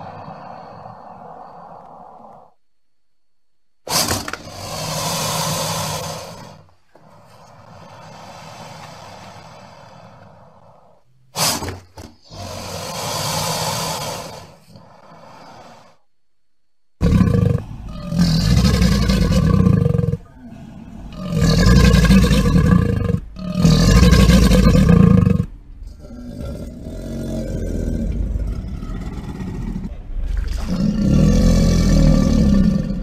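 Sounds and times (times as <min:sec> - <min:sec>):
crocodile calling: 0:17.0 - 0:33.0.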